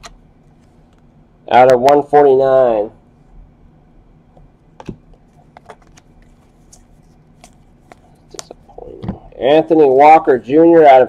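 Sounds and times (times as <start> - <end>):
trading cards clicking and snapping: 4.8 - 8.6.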